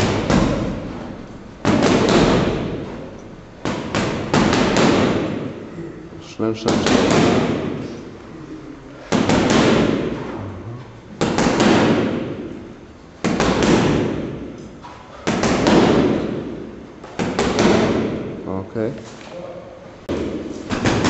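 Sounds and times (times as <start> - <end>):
gloves punching heavy bag: 0.0 - 5.6, 6.6 - 8.0, 9.1 - 10.4, 11.2 - 12.6, 13.2 - 14.6, 15.2 - 18.4, 20.1 - 21.0.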